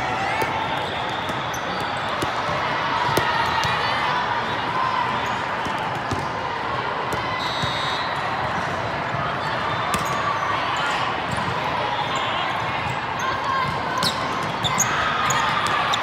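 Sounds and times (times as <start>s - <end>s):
many overlapping voices: 0.0s - 16.0s
volleyballs being hit and bounced: 0.2s - 3.9s, 5.6s - 6.4s.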